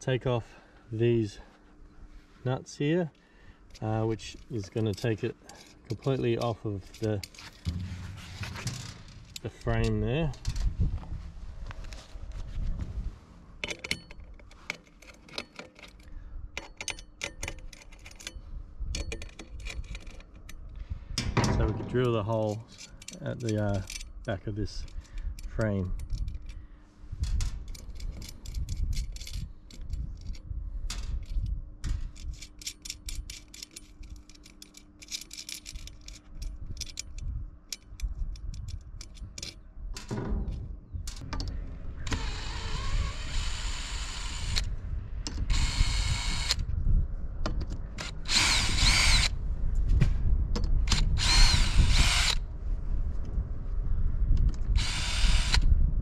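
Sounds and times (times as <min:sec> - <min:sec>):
metallic clicks of hardware: 0:13.6 - 0:20.6, 0:21.2 - 0:26.6
cordless drill drilling into metal: 0:42.1 - 0:44.7, 0:45.5 - 0:46.6, 0:48.0 - 0:49.3, 0:51.2 - 0:52.4, 0:54.8 - 0:55.6.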